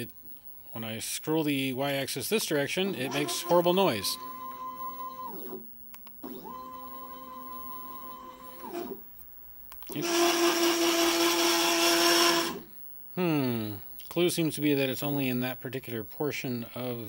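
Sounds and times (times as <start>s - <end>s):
router drive whine: 2.8s - 9.0s, 9.9s - 12.7s.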